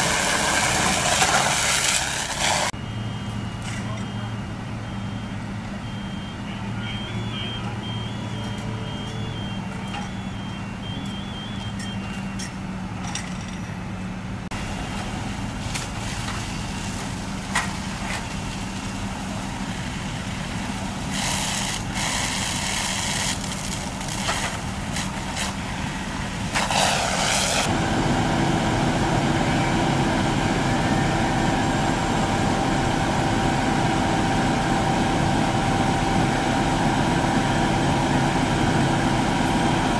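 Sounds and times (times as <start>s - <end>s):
fire engine drone: 0.0s - 39.9s
high electronic beeping: 2.8s - 12.4s.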